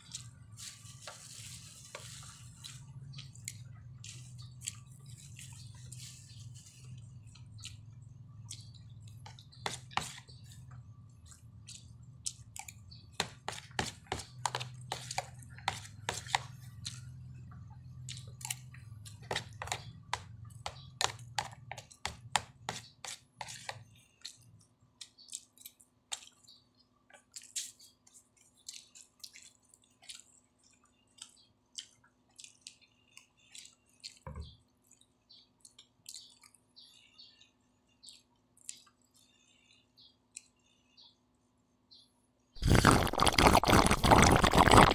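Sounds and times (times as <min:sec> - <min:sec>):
chewing: 0:02.2 - 0:13.0, 0:13.8 - 0:22.0, 0:22.8 - 0:34.2, 0:42.6 - 0:44.9
spoon scraping plastic container: 0:09.6 - 0:10.5, 0:13.2 - 0:17.0, 0:19.0 - 0:23.9, 0:42.6 - 0:44.9.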